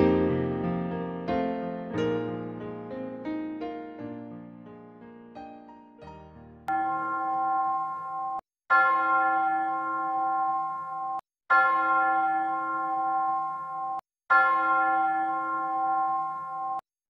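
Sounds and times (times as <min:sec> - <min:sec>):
church bell ringing: 0:06.7 - 0:16.8.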